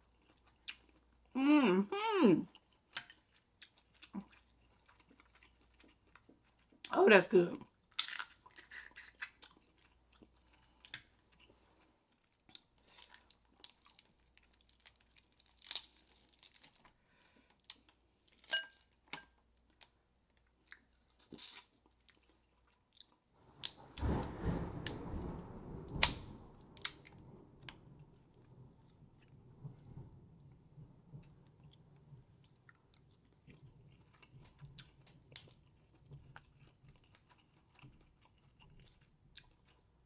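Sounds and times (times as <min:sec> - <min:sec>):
chewing: 0:02.5 - 0:06.9, 0:07.6 - 0:23.2, 0:32.4 - 0:40.0
crab shells cracking: 0:07.8 - 0:09.5, 0:12.6 - 0:16.8
crackling and rustling: 0:23.4 - 0:38.1.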